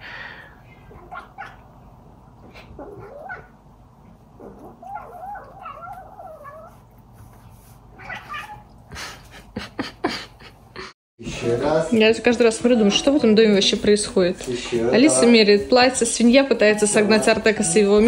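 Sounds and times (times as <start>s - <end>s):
cat yowling: 0.8s - 1.8s, 2.6s - 3.6s, 4.4s - 6.9s, 7.9s - 8.8s.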